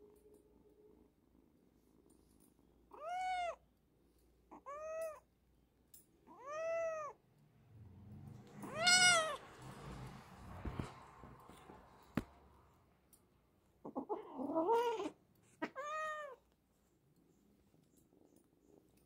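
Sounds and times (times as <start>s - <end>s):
kitten meowing: 2.9s - 3.6s, 8.6s - 9.4s, 13.9s - 16.4s.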